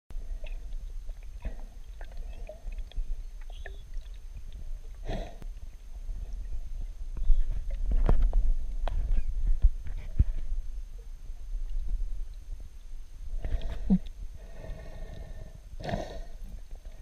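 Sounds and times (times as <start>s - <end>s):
underwater rumble of moving water: 0.1s - 17.0s.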